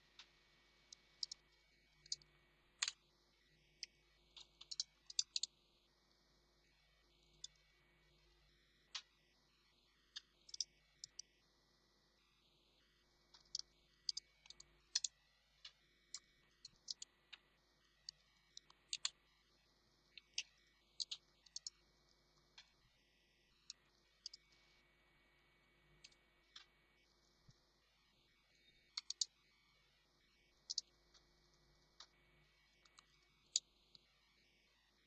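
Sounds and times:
keyboard typing: 0:13.4 - 0:15.1, 0:18.8 - 0:19.1, 0:29.0 - 0:29.3.

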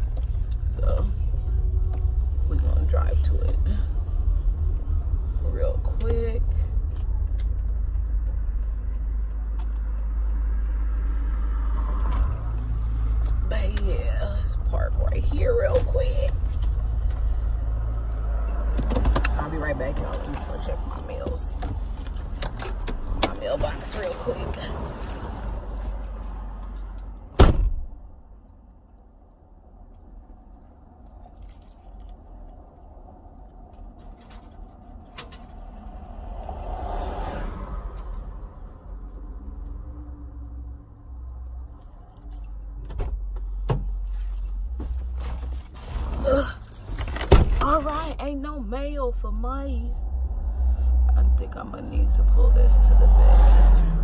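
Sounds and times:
car engine and road rumble: 0:00.0 - 0:54.0
car door slamming: 0:27.4 - 0:28.0.

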